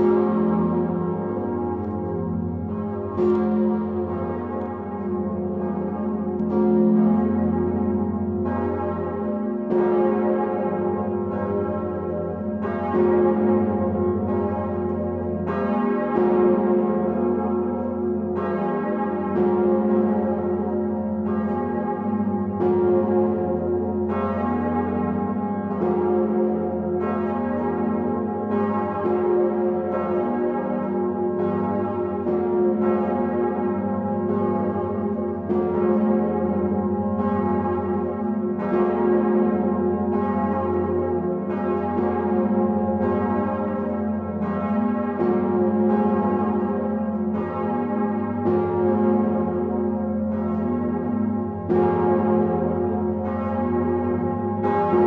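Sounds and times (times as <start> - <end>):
large church bells pealing: 0.0 - 55.0.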